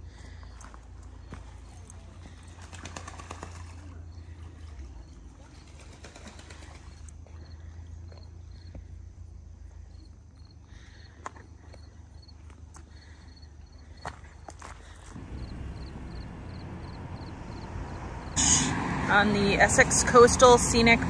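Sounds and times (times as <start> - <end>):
low wind rumble: 15.1 - 21.0.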